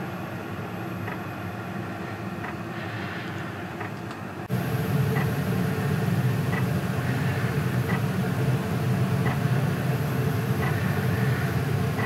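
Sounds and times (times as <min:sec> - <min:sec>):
low mechanical hum: 0:00.0 - 0:12.0
faint regular ticking: 0:07.8 - 0:08.2.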